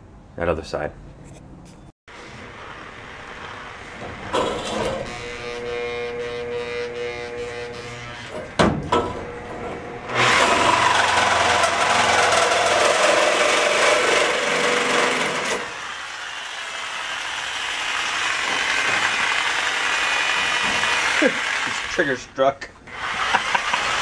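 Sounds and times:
reciprocating saw cutting steel: 9.3s - 22.2s, 22.9s - 24.0s.

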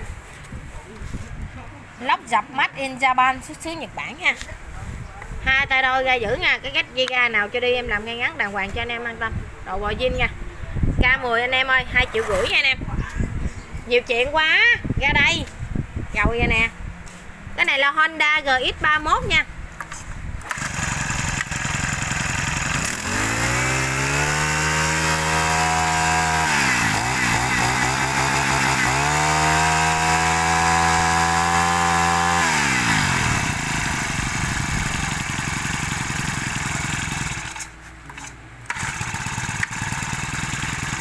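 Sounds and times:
brush-cutter engine revving: 19.8s - 41.0s.

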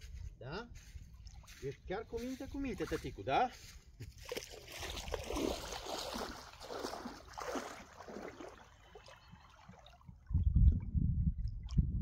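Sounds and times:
sea water splashing: 4.2s - 10.7s.

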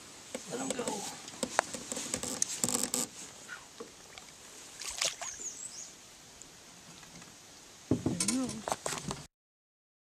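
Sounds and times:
water splashing: 3.8s - 5.6s
knocks against metal hull: 7.9s - 8.3s.

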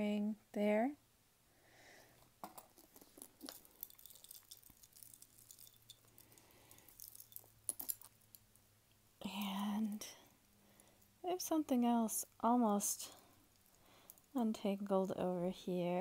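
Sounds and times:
jewelry clicking and clinking: 2.2s - 15.2s
plastic bag crinkling: 2.5s - 8.3s.

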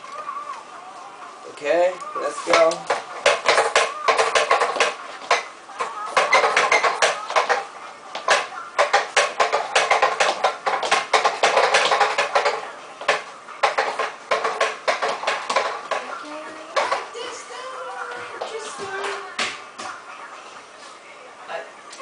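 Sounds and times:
plastic baby walker rattling on wood: 2.5s - 17.4s.

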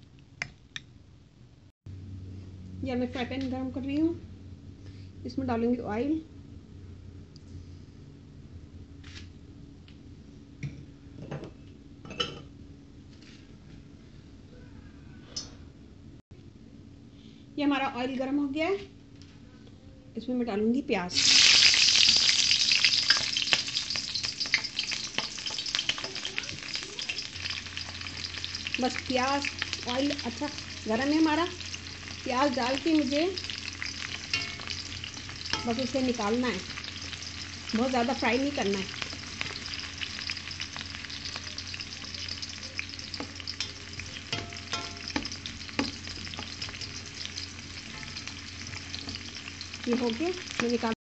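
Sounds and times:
onions sizzling in oil: 21.1s - 51.0s.

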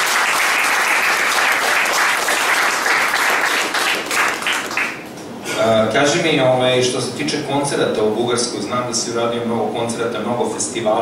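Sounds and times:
audience applauding: 0.0s - 5.1s.

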